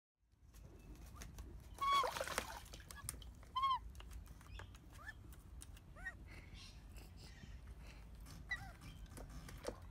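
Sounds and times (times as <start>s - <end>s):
water splashing: 1.8s - 3.4s.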